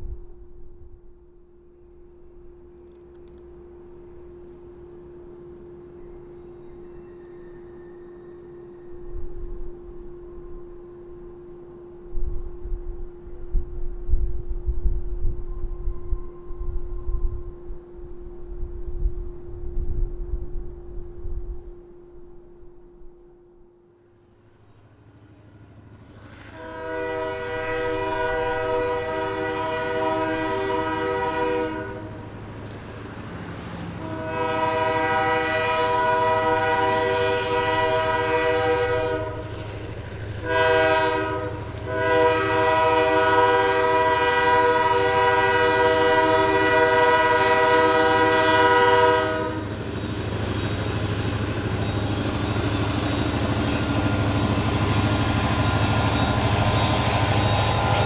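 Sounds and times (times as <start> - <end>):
locomotive engine rumble: 24.4 - 58.0
train air horn blasts: 26.4 - 32.3, 33.9 - 58.0.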